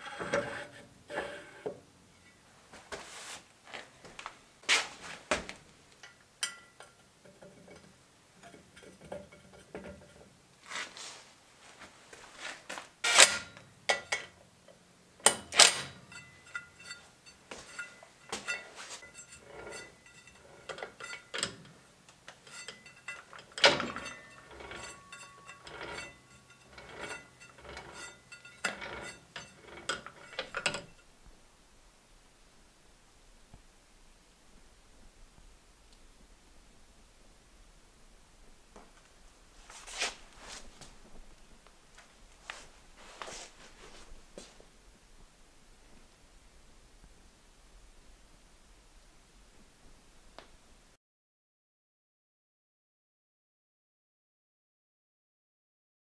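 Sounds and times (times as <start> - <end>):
metal parts clinking and scraping: 13.0 - 14.3, 15.2 - 21.6, 22.3 - 31.0.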